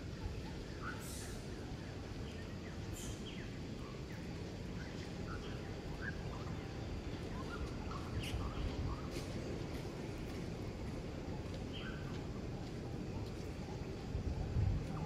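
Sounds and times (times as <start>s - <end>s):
outdoor background noise: 0.0s - 15.0s
small birds chirping: 0.2s - 9.3s, 11.4s - 12.3s.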